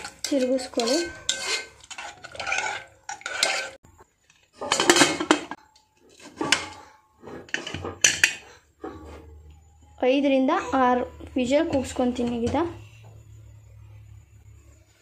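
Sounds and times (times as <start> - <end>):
spoon scraping metal pot: 0.0 - 9.5.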